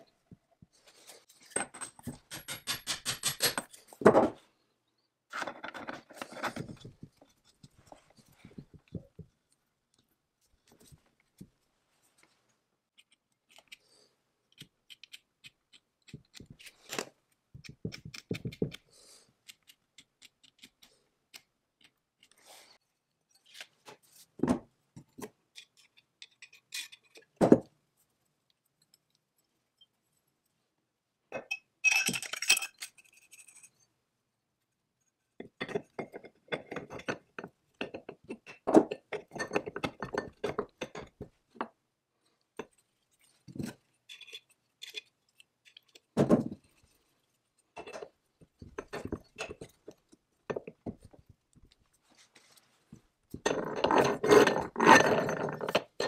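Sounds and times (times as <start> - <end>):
metal parts clinking and rattling: 31.8 - 33.8.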